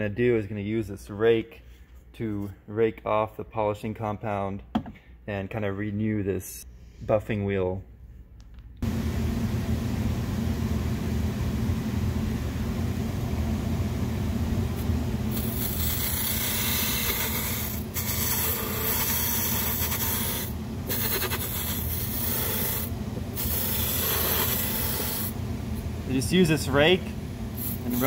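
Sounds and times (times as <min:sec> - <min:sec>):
bench buffer humming: 0:08.8 - 0:28.0
rake rasping on buffing wheel: 0:15.3 - 0:25.3, 0:27.6 - 0:28.0.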